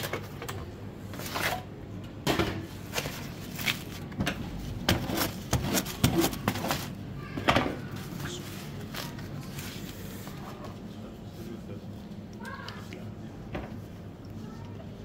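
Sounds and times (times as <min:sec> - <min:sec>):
kitchen knocks and clunks: 0:02.2 - 0:02.8, 0:07.4 - 0:07.9.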